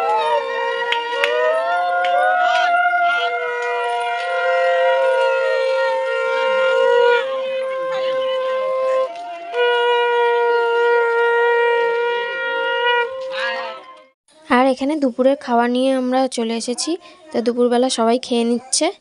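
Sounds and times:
conch shells blown: 0.0 - 14.1.

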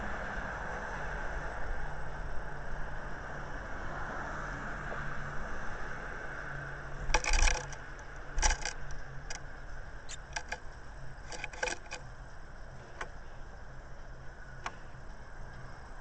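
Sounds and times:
bird claws scraping on wood: 7.1 - 9.4, 10.1 - 10.6, 11.2 - 12.0.

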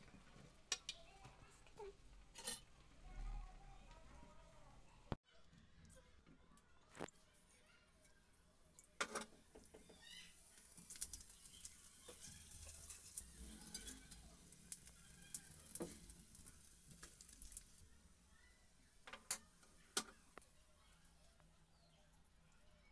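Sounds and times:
spices sizzling in hot oil: 8.6 - 21.0.

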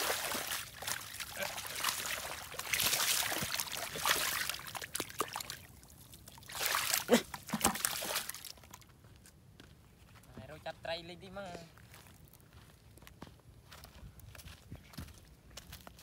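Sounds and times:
hands splashing in muddy water: 0.0 - 8.8.

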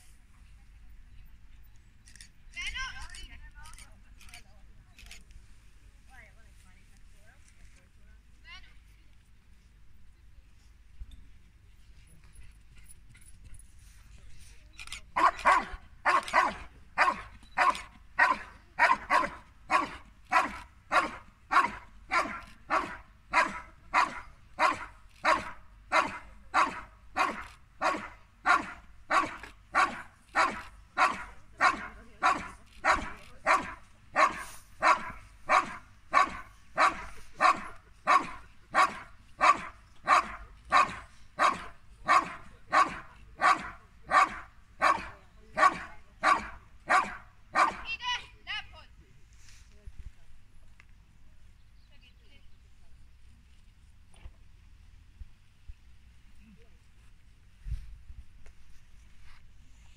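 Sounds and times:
dog barking rhythmically: 15.2 - 47.9.

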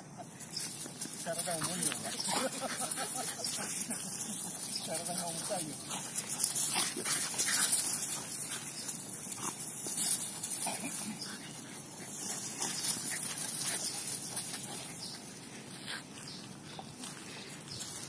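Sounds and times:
paws scuffling on sandy ground: 0.4 - 18.0
dogs growling and grunting: 10.5 - 11.6.

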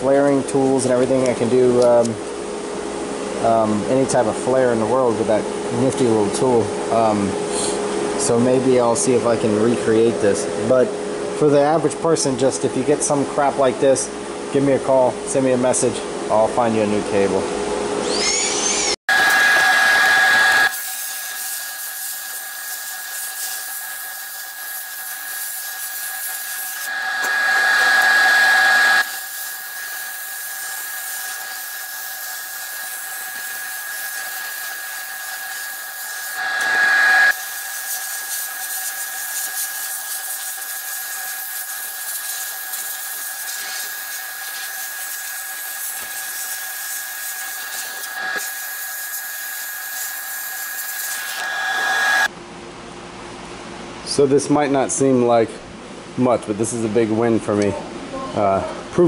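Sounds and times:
constant high whine: 0.0 - 52.4
sandblast gun hissing: 18.3 - 52.3.

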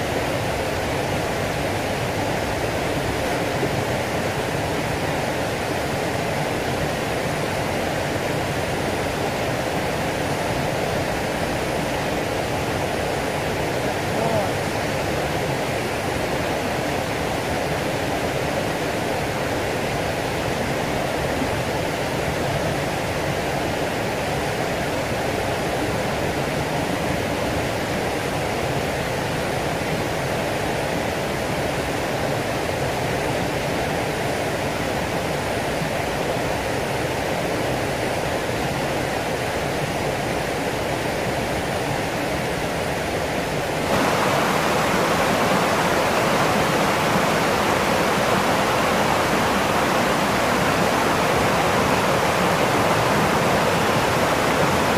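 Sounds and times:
water rushing in canal: 0.0 - 54.9
water spilling over weir: 43.9 - 54.9.

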